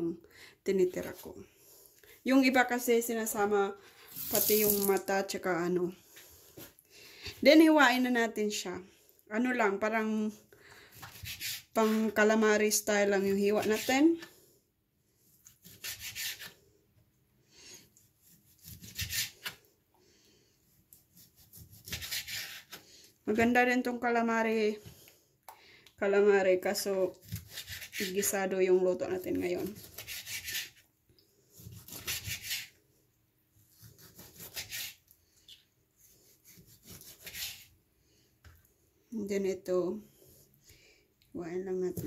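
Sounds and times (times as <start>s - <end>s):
knife slicing on cutting board: 11.0s - 12.1s, 15.5s - 16.6s, 18.2s - 19.6s, 21.0s - 22.8s, 27.2s - 28.2s, 29.6s - 30.8s, 31.6s - 32.7s, 33.6s - 35.0s, 36.4s - 37.7s.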